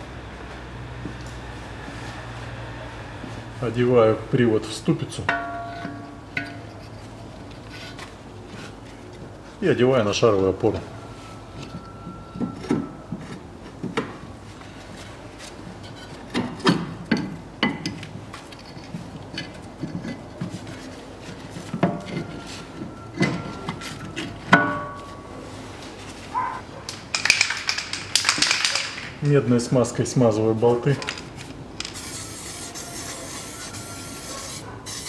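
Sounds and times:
metal parts clunking: 0:27.0 - 0:29.2, 0:30.8 - 0:32.0
metal rubbing: 0:30.9 - 0:35.0.

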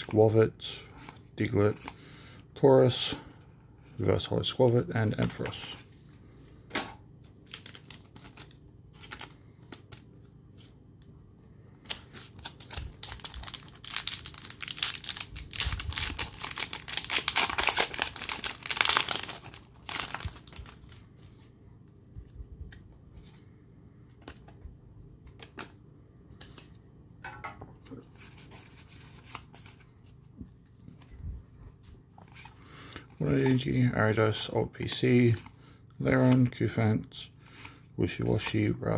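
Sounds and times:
foil wrapper tearing and crinkling: 0:12.1 - 0:21.1.

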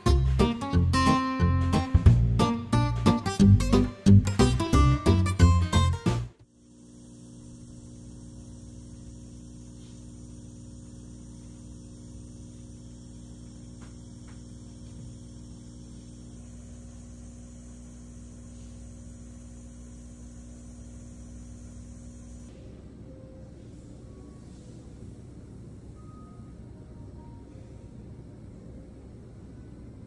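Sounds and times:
low electrical hum: 0:06.4 - 0:30.0.

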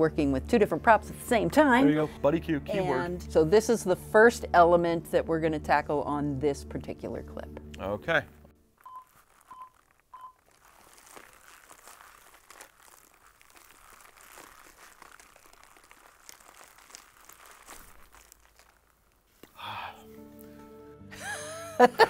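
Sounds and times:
leather creaking and crackling: 0:08.7 - 0:19.6
cabbage crunching: 0:08.8 - 0:19.6.

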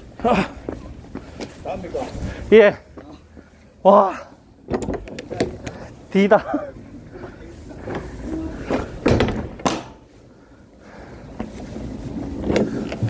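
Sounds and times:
steady street rumble: 0:00.0 - 0:13.0
clunks and knocks on truck body: 0:08.7 - 0:10.0.

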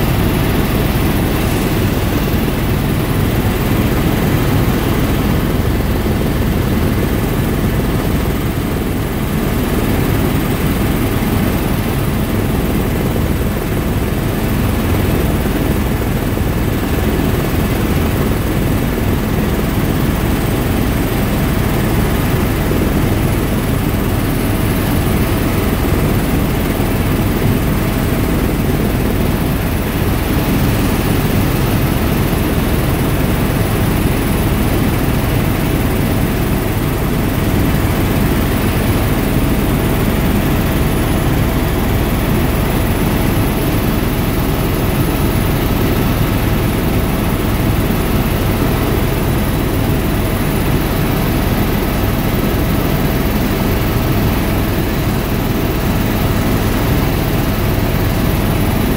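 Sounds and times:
helicopter cabin drone: 0:00.0 - 0:58.9.

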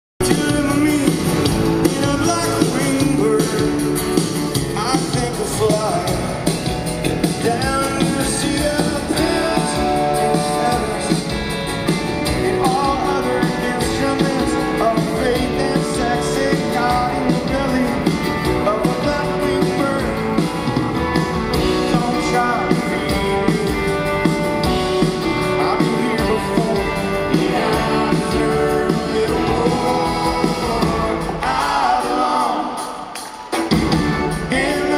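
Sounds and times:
man singing lead vocals: 0:00.2 - 0:11.6, 0:12.2 - 0:20.7, 0:21.5 - 0:24.0, 0:25.0 - 0:33.4, 0:34.2 - 0:34.9
live rock band playing: 0:00.2 - 0:34.9.

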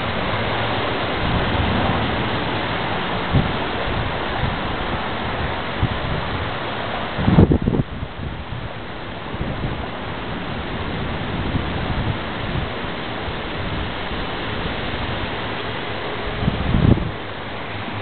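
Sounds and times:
loud low rumble: 0:00.0 - 0:06.3
storm rushing noise: 0:00.0 - 0:17.2.

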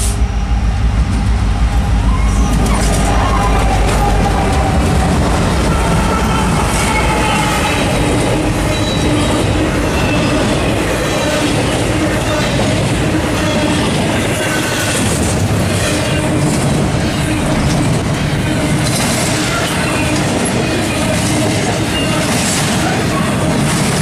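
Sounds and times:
freight train wheels rumbling: 0:00.0 - 0:24.0
high-pitched wheel squeals: 0:02.0 - 0:04.2, 0:05.6 - 0:12.6.

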